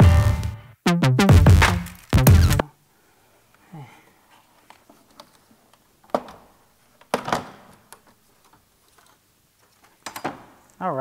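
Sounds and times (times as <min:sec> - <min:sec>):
plastic snaps: 0:01.6 - 0:02.6
plastic clicking: 0:04.6 - 0:10.8.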